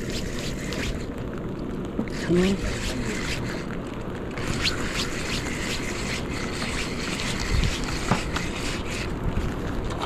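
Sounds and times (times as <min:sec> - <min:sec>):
wind on microphone: 0:02.1 - 0:10.0.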